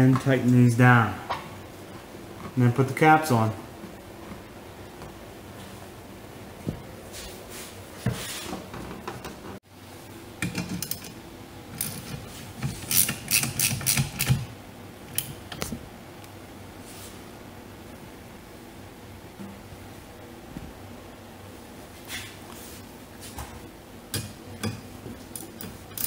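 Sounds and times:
ratchet wrench clicking: 12.9 - 14.5, 25.4 - 26.0.

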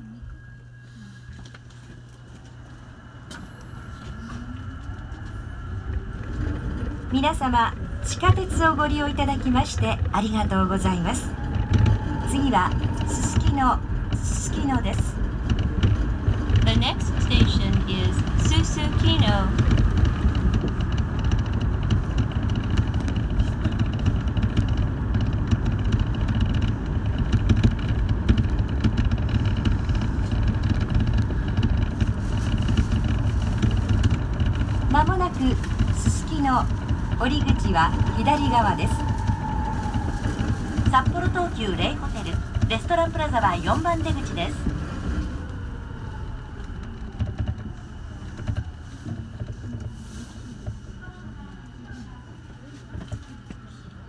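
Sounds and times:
train rumbling through tunnel: 0.0 - 54.0
train knocks: 3.2 - 45.9.

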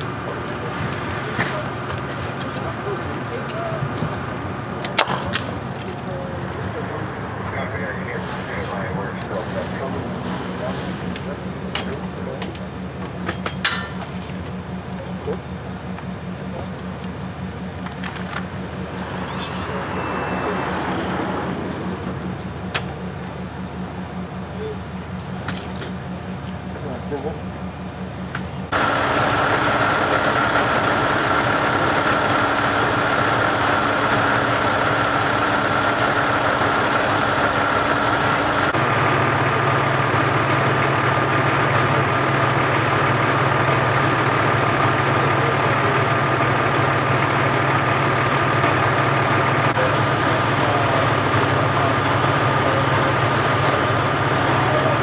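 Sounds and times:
heavy engines idling: 0.0 - 55.0
thin high whine: 18.9 - 22.7.

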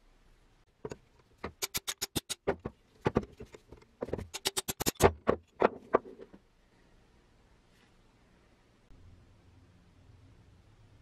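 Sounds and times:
sharp metallic clicks: 1.5 - 2.5, 4.3 - 5.2.

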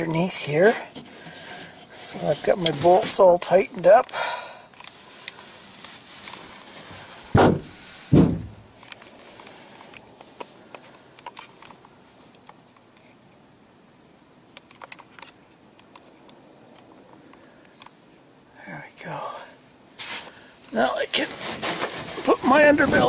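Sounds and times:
rubbing noises on microphone: 0.1 - 3.8, 20.0 - 23.0.

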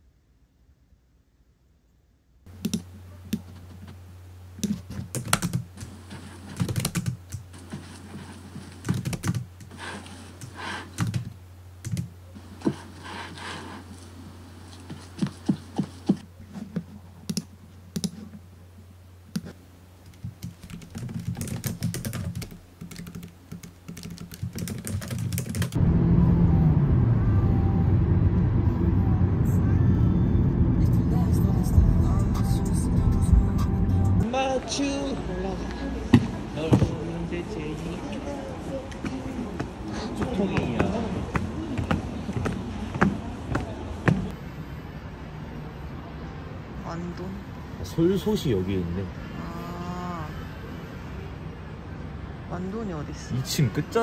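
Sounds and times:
steady low hum: 0.0 - 52.5
laptop keyboard typing: 2.5 - 3.4, 4.6 - 12.1, 17.3 - 18.2, 19.3 - 25.8
loud low rumble: 25.8 - 34.3.

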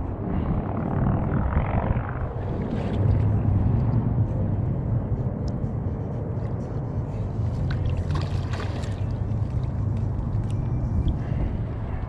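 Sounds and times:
wind on microphone: 0.0 - 12.0
water splash: 7.8 - 9.2.

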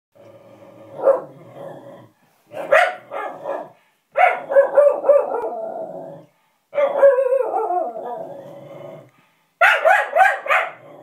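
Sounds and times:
dog barking: 1.0 - 1.3, 2.5 - 5.6, 6.8 - 7.9, 9.6 - 10.8.

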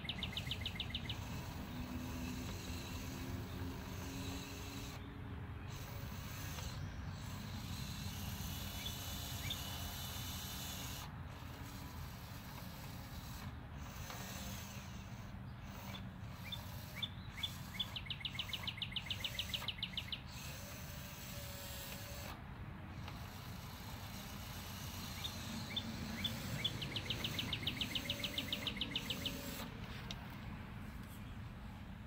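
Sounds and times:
songbird singing trills: 0.0 - 1.6, 16.4 - 20.3, 25.2 - 29.4.

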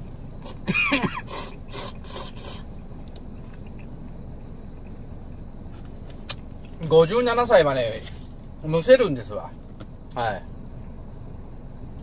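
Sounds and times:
man slurping noodles: 1.2 - 2.7.

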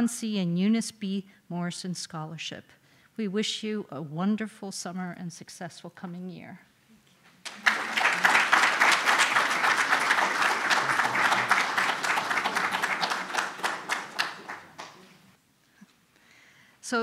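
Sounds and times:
audience applauding: 7.4 - 15.3.

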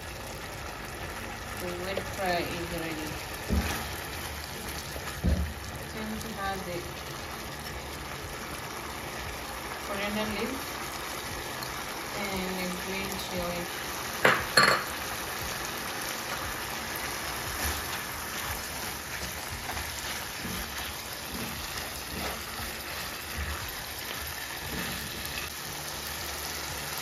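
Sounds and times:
meat sizzling in a pan: 0.0 - 27.0.

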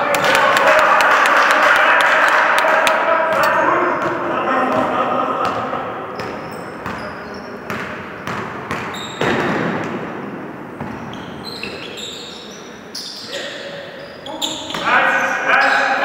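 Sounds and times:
voices in a reverberant hall: 0.0 - 16.0
sneakers squeaking on hardwood: 6.2 - 9.5, 10.8 - 13.4, 14.0 - 14.9.

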